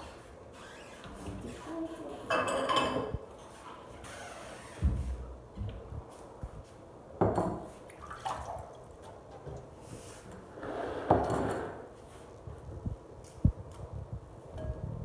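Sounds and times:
water dripping: 0:07.9 - 0:09.2.

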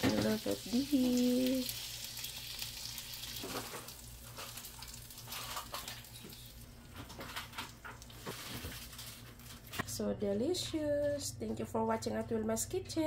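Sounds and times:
chicken sizzling on grill pan: 0:00.0 - 0:06.0.

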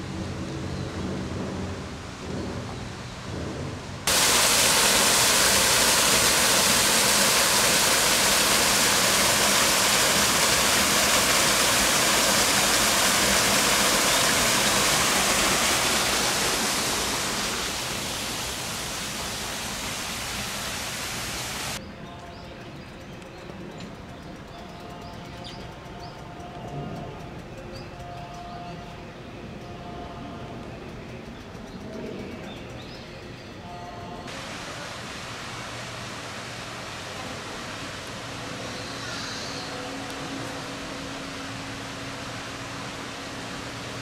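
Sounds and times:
loud rushing hiss: 0:01.2 - 0:21.8, 0:34.3 - 0:44.0.

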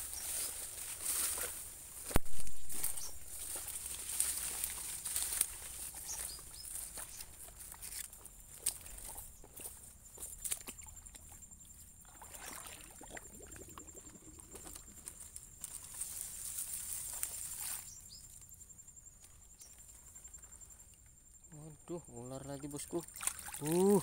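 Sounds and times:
palm fronds rustling: 0:00.0 - 0:10.6, 0:14.7 - 0:18.6, 0:23.4 - 0:24.0
muddy water sloshing and splashing: 0:02.2 - 0:17.9, 0:22.6 - 0:24.0.

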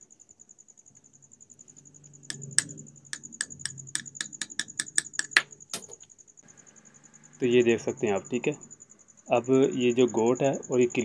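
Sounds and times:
hammer tapping metal punch: 0:02.3 - 0:06.0.

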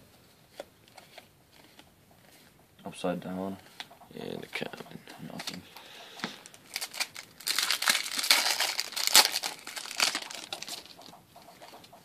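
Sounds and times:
foil wrapper crinkling and tearing: 0:06.4 - 0:11.1.

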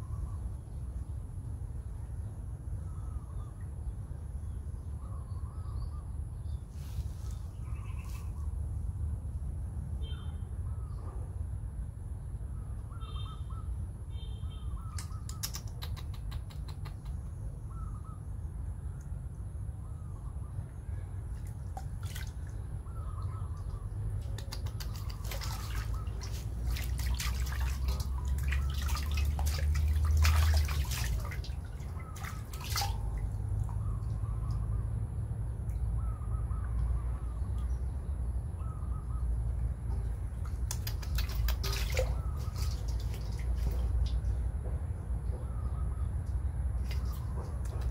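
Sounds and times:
water splashing in a metal basin: 0:21.3 - 0:22.8, 0:23.6 - 0:34.6, 0:40.2 - 0:44.3, 0:46.8 - 0:47.9.

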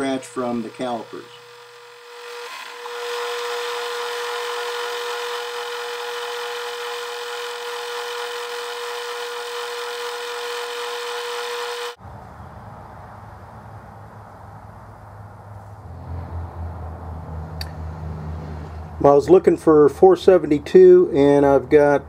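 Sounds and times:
lathe turning metal whine: 0:00.0 - 0:12.0
low hum: 0:12.0 - 0:22.0.

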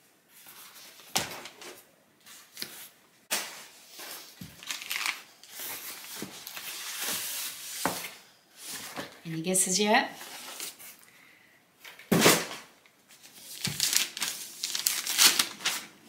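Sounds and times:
cardboard rustling: 0:13.1 - 0:15.9.

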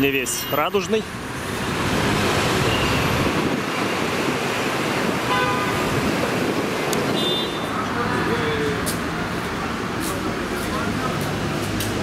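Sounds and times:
passing cars: 0:00.0 - 0:12.0
car horn toot: 0:05.3 - 0:05.9, 0:07.1 - 0:07.8.

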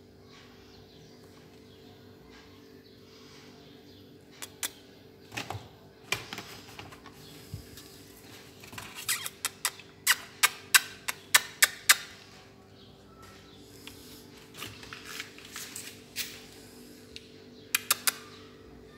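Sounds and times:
faint steady hum: 0:12.0 - 0:18.9.

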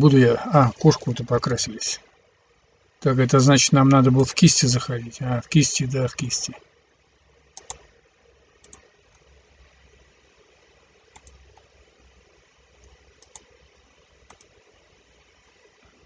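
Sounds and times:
low room hiss: 0:00.0 - 0:16.0
computer mouse clicking: 0:07.5 - 0:08.0, 0:08.6 - 0:09.3, 0:11.1 - 0:11.8, 0:12.8 - 0:14.7.

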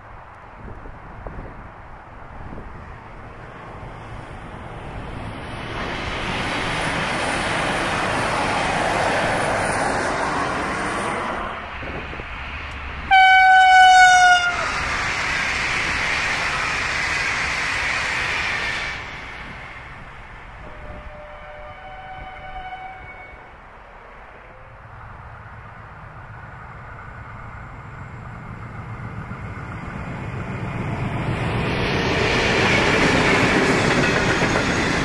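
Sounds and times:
diesel train passing at speed: 0:00.0 - 0:35.0
train horn: 0:13.1 - 0:14.8, 0:20.6 - 0:23.6.

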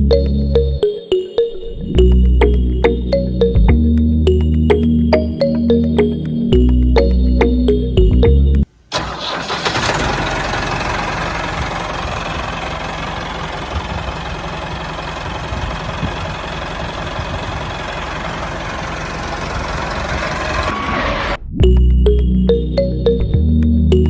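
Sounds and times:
tractor engine chugging: 0:08.9 - 0:20.8.

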